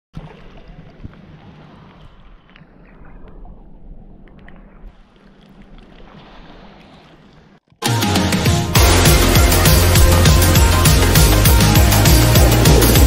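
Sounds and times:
small waves lapping and splashing: 0.2s - 7.8s.

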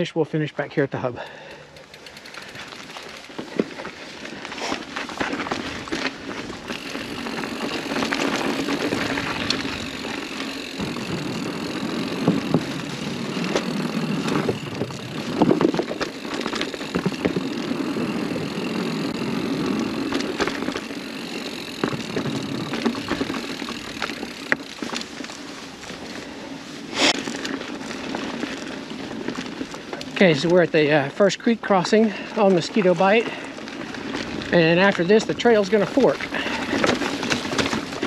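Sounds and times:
bike tyre rumble: 0.0s - 38.0s.

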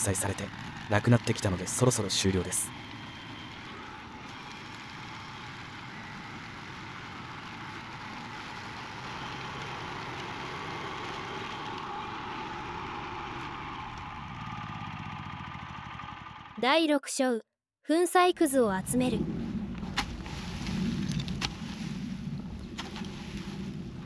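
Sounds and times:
mower shredding bamboo canes: 0.0s - 16.2s.

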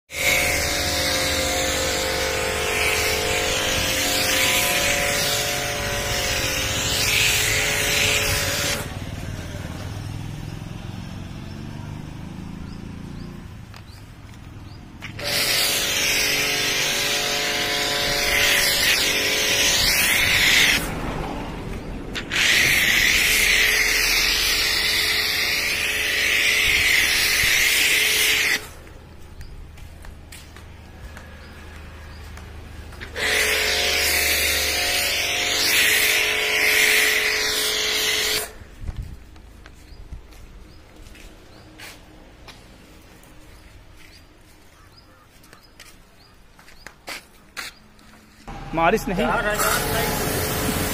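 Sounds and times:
pressure washer motor hum: 0.1s - 9.8s, 15.0s - 28.9s, 32.9s - 38.6s, 48.5s - 50.9s
spray hissing on car body: 49.6s - 50.9s.

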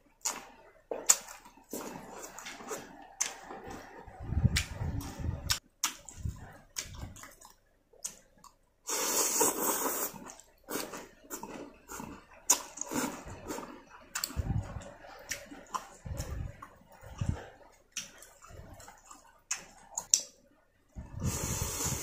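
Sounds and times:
wet chewing sounds: 0.0s - 20.4s
man slurping noodles: 8.9s - 12.1s, 21.2s - 22.0s.

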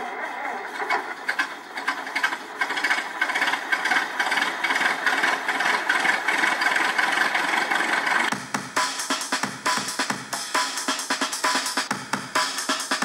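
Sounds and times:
mechanical engine-like rattle: 0.0s - 8.4s.

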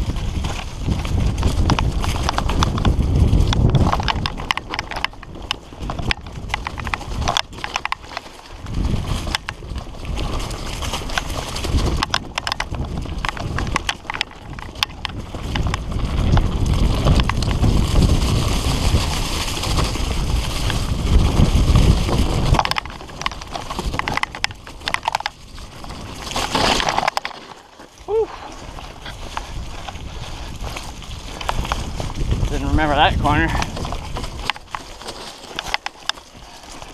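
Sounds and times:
bike rattling on rough trail: 0.0s - 36.9s
wind rumble on microphone: 0.0s - 36.9s.

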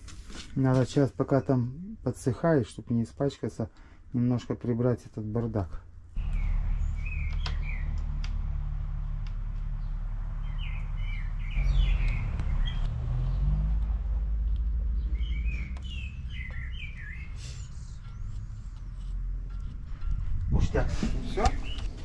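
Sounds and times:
steady low hum: 5.7s - 22.0s
songbird chirping: 6.2s - 22.0s.

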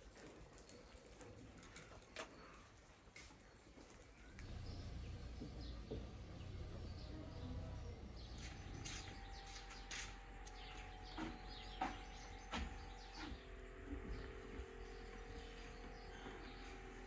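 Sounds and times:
bird chirps: 8.2s - 17.0s.

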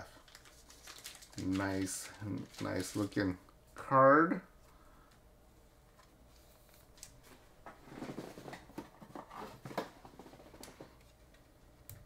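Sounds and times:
plastic card sleeves rustling: 0.2s - 3.4s.

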